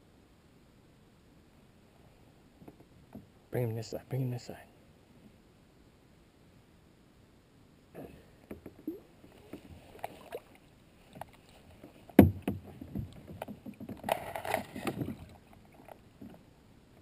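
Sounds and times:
water splashing around a kayak: 8.0 - 17.0.

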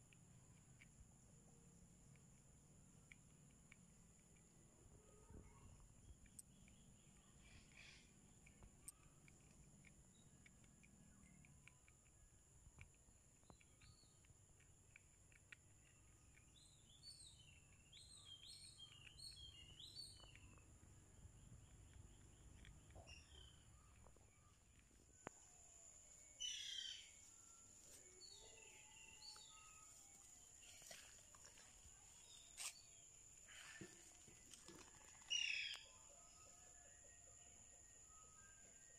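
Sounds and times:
small birds chirping: 0.0 - 36.6
faint high-pitched tone: 35.8 - 38.9.

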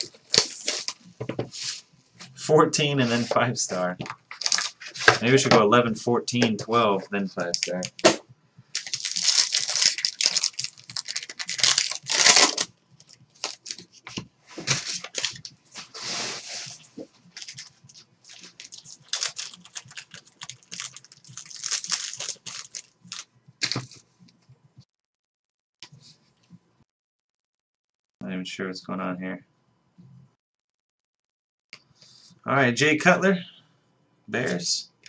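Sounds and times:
wrappers rustling and tearing: 4.3 - 5.0, 8.8 - 14.0, 14.6 - 24.0.

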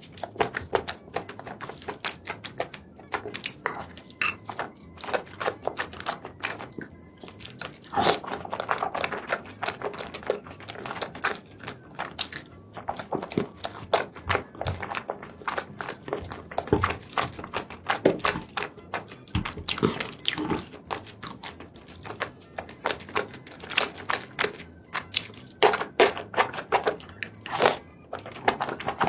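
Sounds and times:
wet chewing and slurping: 0.0 - 29.0.

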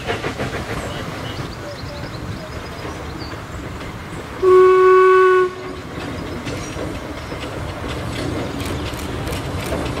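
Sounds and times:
locomotive horn blast: 4.4 - 5.9.

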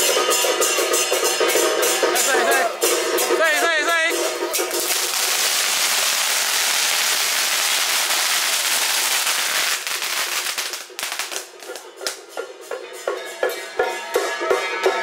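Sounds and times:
firecrackers crackling: 2.2 - 12.3.

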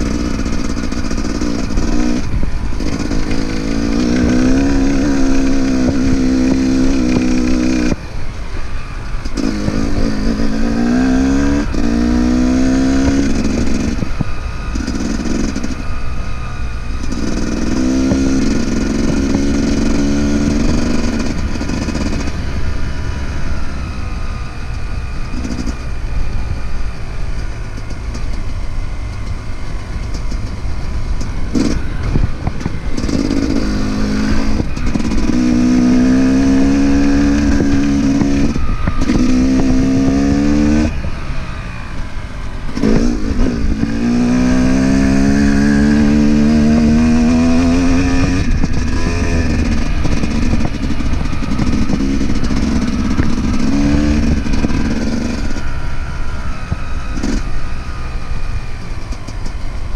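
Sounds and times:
wind buffeting microphone: 0.0 - 24.5, 30.2 - 59.9
dirt bike engine revving: 0.0 - 59.9.

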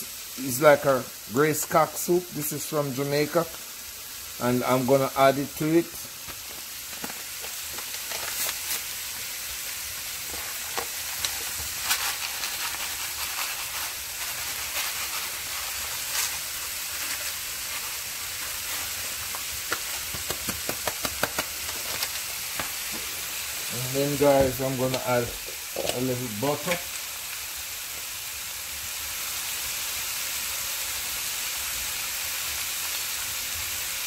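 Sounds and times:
vegetables sizzling in oil: 0.0 - 34.0
oil popping: 5.9 - 23.2.

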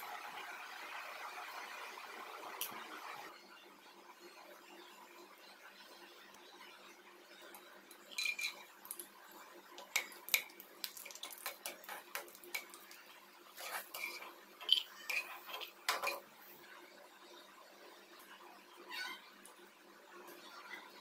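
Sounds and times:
spatula scraping a wok: 8.1 - 8.7, 11.0 - 12.9, 13.5 - 16.3.

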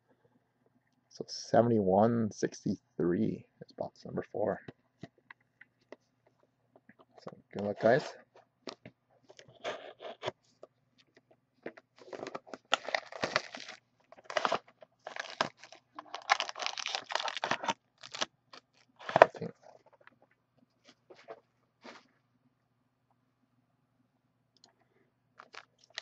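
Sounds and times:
plastic packaging crinkling: 12.0 - 19.5, 25.4 - 26.0
cardboard tearing: 12.7 - 19.4.

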